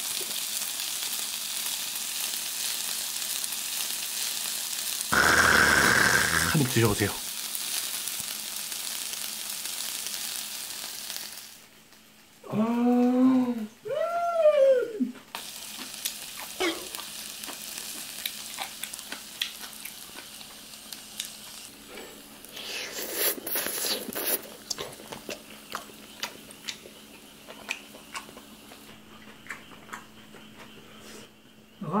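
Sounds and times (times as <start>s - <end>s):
meat sizzling on grill: 0.0s - 12.4s, 15.3s - 27.4s
woman humming mmm: 5.2s - 6.7s.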